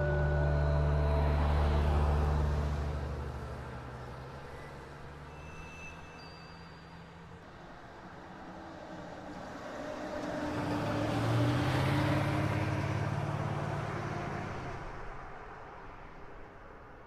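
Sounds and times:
vehicle passing by: 0:00.0 - 0:05.3, 0:09.4 - 0:15.3.

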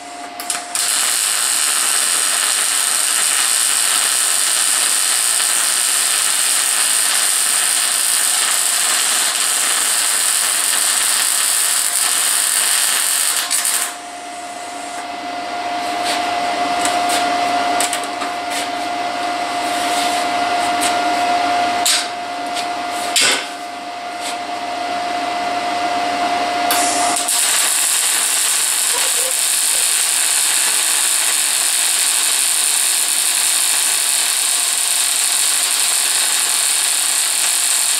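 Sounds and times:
welding arc hiss: 0:00.4 - 0:14.0, 0:26.7 - 0:37.9.

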